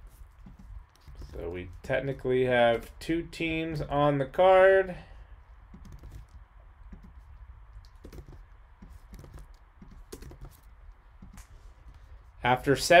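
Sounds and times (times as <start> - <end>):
computer keyboard typing: 5.7 - 7.2, 7.8 - 11.4.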